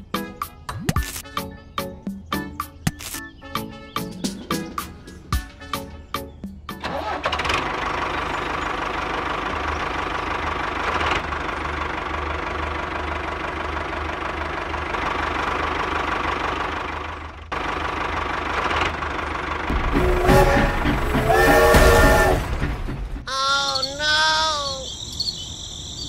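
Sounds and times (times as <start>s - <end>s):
tractor engine running: 6.6s - 24.8s.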